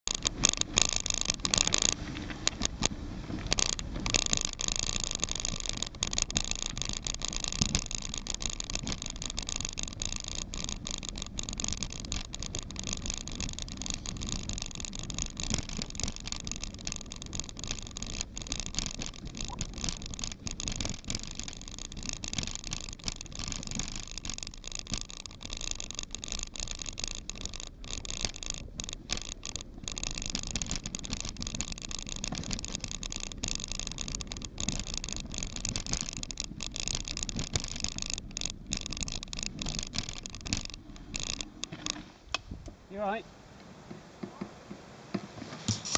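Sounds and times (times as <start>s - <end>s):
bike rattling over bumps: 0.0s - 45.9s
bike tyre and air rush: 0.0s - 45.9s.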